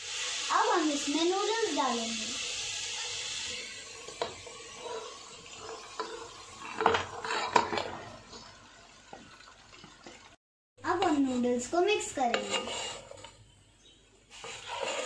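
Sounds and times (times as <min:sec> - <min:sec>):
sauce sizzling in a wok: 0:00.0 - 0:09.1, 0:14.2 - 0:15.0.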